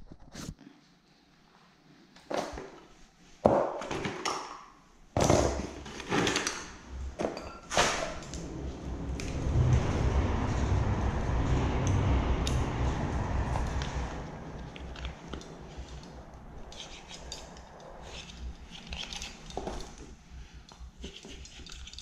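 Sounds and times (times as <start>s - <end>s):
knocks and clatter of tools: 5.2s - 8.3s, 14.7s - 22.0s
steady rushing noise: 6.8s - 19.5s.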